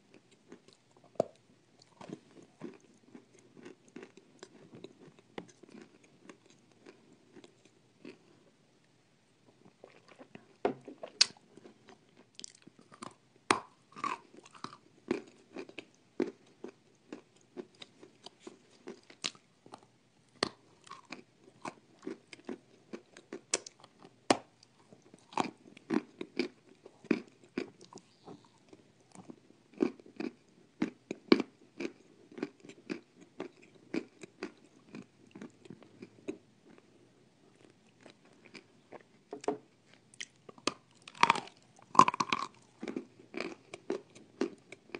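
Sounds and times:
crunchy biting and chewing: 0:11.0 - 0:36.8, 0:39.9 - 0:44.9.

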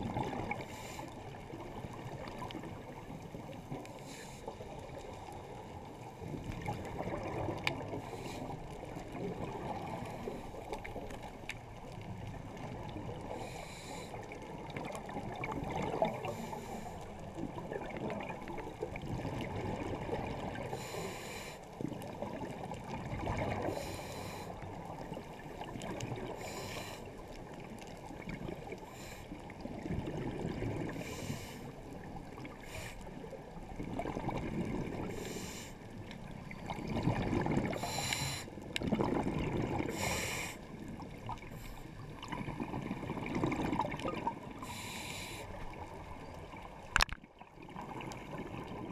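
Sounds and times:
diver breathing through regulator: 0:00.6 - 0:01.2, 0:04.0 - 0:04.7, 0:08.0 - 0:08.6, 0:13.3 - 0:14.2, 0:16.2 - 0:17.1, 0:20.6 - 0:21.7, 0:23.6 - 0:24.6, 0:26.3 - 0:27.2, 0:28.8 - 0:29.5, 0:30.9 - 0:31.8, 0:32.6 - 0:33.1, 0:35.0 - 0:35.8, 0:37.6 - 0:38.6, 0:39.8 - 0:40.7, 0:44.6 - 0:45.6
exhaled bubbles rushing: 0:14.8 - 0:16.3, 0:22.2 - 0:23.7, 0:29.7 - 0:31.0, 0:33.8 - 0:35.1, 0:36.6 - 0:37.9, 0:38.8 - 0:40.1, 0:42.1 - 0:44.6.

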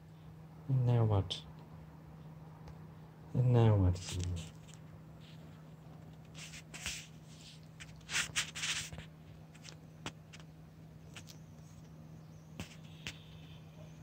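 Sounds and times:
faint low hum: 0:00.0 - 0:14.0
rustling scrapes of string toy: 0:04.0 - 0:10.4.

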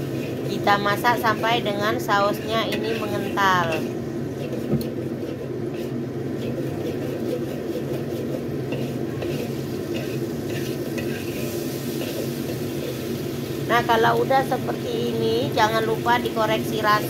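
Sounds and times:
spatula scraping a wok: 0:00.0 - 0:13.7
sauce sizzling: 0:00.0 - 0:17.0.

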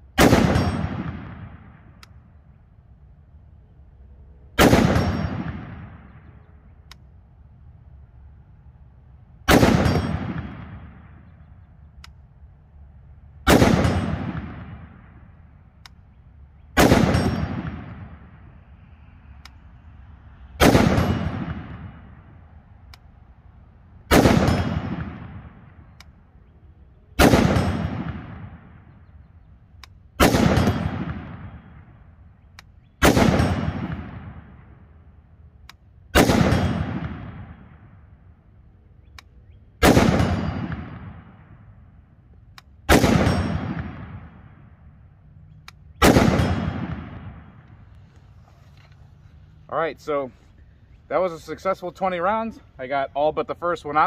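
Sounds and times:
rifle shots with echo: 0:00.1 - 0:02.3, 0:04.5 - 0:06.7, 0:09.4 - 0:11.7, 0:13.4 - 0:16.0, 0:16.8 - 0:18.6, 0:20.6 - 0:22.5, 0:24.0 - 0:26.3, 0:27.1 - 0:29.3, 0:30.1 - 0:32.2, 0:33.0 - 0:35.1, 0:36.1 - 0:38.6, 0:39.2 - 0:48.0.

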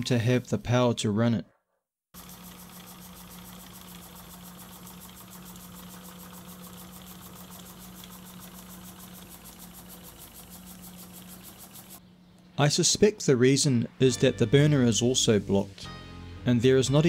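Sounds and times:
steam engine ticking: 0:02.2 - 0:12.0
steady low hum: 0:02.2 - 0:14.1.

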